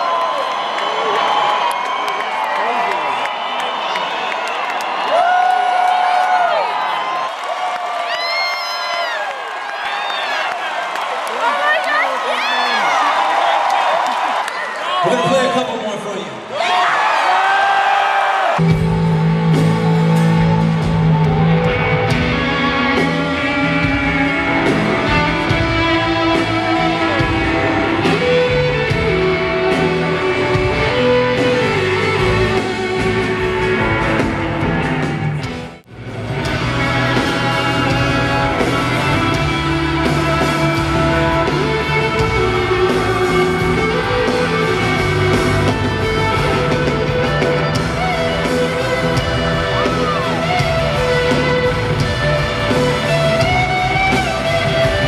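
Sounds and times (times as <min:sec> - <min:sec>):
live rock band: 0:18.6 - 0:55.0.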